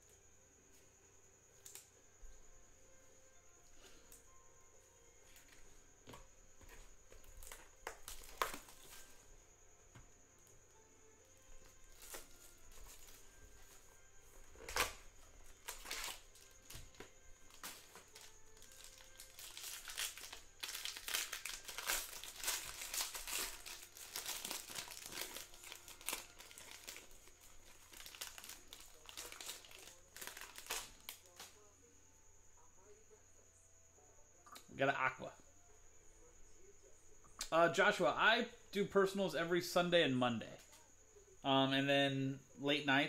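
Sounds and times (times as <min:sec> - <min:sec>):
foil wrapper crinkling: 0:06.7 - 0:09.2, 0:11.8 - 0:13.8, 0:14.4 - 0:31.6.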